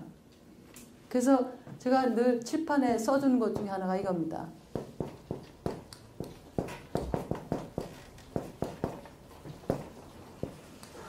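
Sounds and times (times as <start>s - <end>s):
marker tapping on whiteboard: 4.7s - 10.7s.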